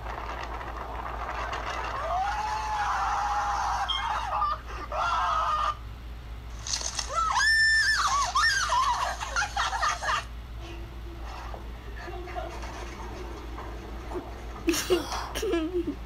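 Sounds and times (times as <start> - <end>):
voices squealing and screaming: 1.7 - 5.9, 6.9 - 10.3.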